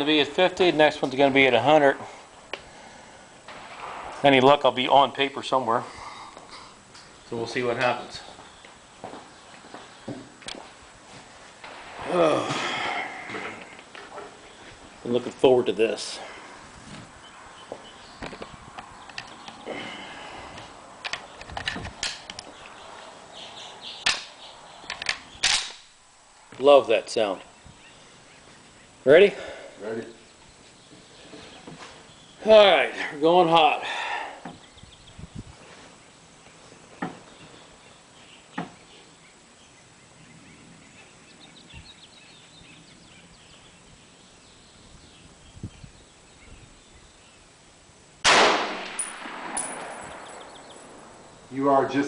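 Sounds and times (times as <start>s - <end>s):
sharp crack: 3.4s - 5.8s, 11.6s - 14.1s, 21.0s - 22.5s, 24.0s - 26.0s, 48.2s - 51.2s
loud rifle shot: 3.5s - 5.1s, 25.4s - 25.9s, 48.2s - 51.0s
small birds chirping: 4.3s - 47.9s, 49.0s - 52.0s
rifle loading clicks and clacks: 21.0s - 22.5s, 24.9s - 25.8s.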